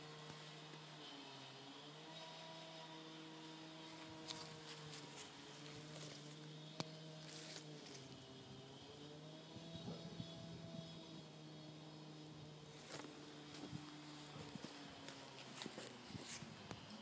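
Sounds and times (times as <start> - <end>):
soft rustles: 3.8 - 6.4, 12.7 - 16.9.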